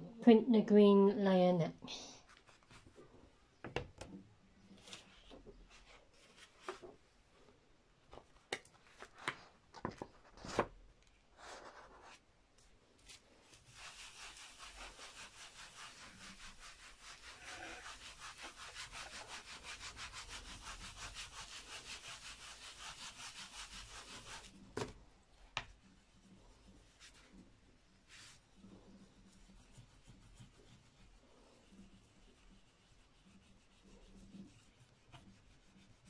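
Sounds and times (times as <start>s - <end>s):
light taps and paper rustling: 6.2s - 7.0s, 8.1s - 11.2s
baren rubbing over paper: 11.4s - 12.2s, 13.1s - 24.7s, 25.7s - 36.0s.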